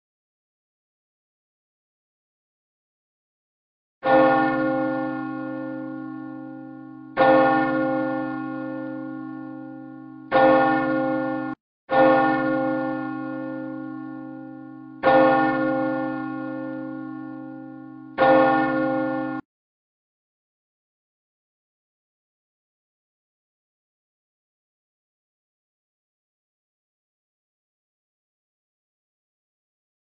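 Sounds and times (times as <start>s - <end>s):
church bell ringing: 4.0s - 19.5s.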